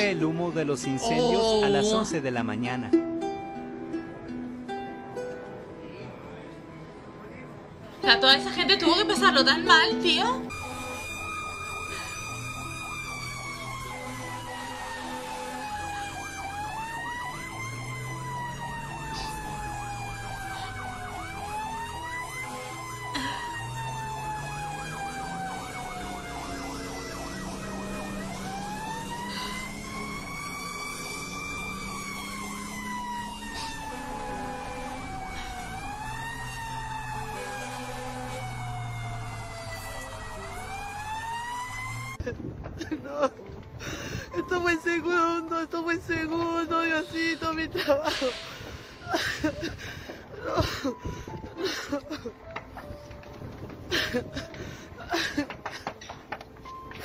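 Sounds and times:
fire engine siren wailing: 0:10.4 - 0:42.4, 0:44.2 - 0:57.0.

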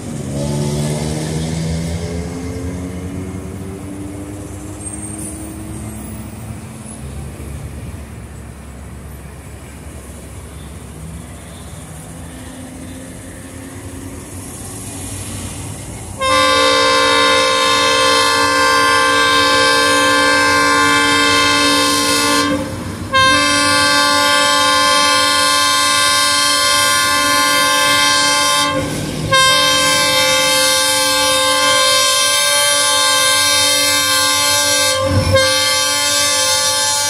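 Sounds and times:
locomotive rumble: 0:00.0 - 0:37.0
multi-tone air horn blasts: 0:16.2 - 0:37.0.

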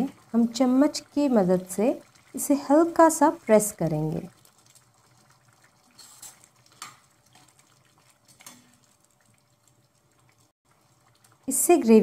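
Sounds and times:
wet squelches of thick curry: 0:00.0 - 0:11.8
spoon scraping a pan: 0:05.8 - 0:09.0.

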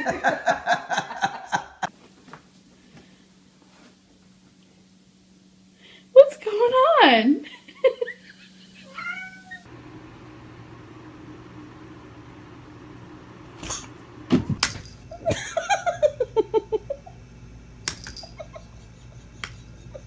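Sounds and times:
electric device humming: 0:04.1 - 0:20.0.

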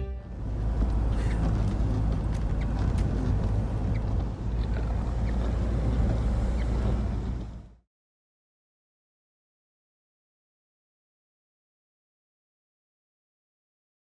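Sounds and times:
van engine and road noise: 0:00.0 - 0:07.8.

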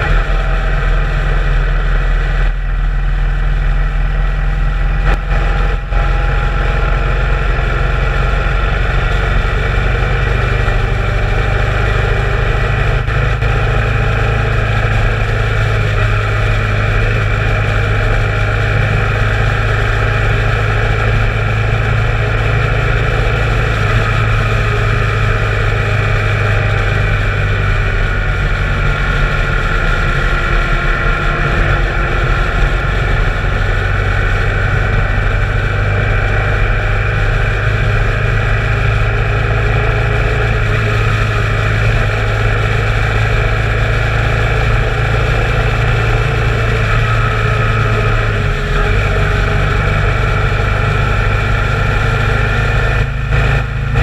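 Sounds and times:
motorcycle engine running: 0:00.0 - 0:54.0
rushing wind: 0:00.0 - 0:54.0.

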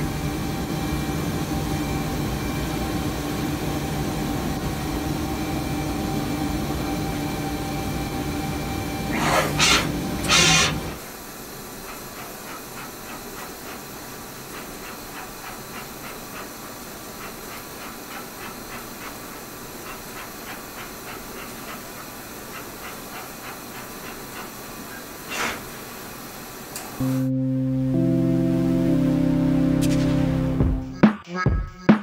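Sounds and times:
machine hiss: 0:05.8 - 0:27.0
short loud machine noise: 0:09.1 - 0:11.0.

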